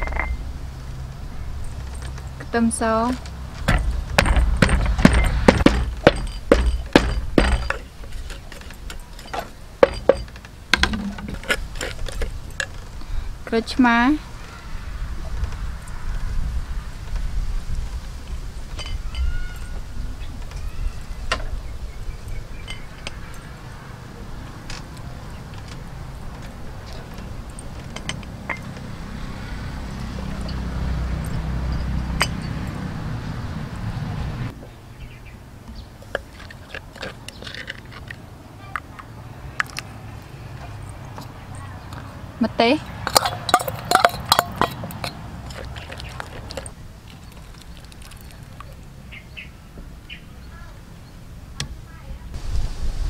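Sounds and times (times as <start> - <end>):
pestle pounding in wooden mortar: 3.6 - 8.6, 9.8 - 12.3, 43.0 - 46.7
metal spoon scraping in mortar: 42.9 - 47.4.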